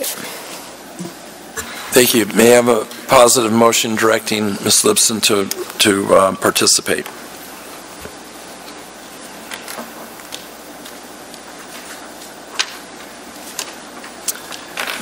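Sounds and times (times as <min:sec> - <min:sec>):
steady room hiss: 0:00.0 - 0:15.0
faint clicks and taps: 0:09.5 - 0:12.8.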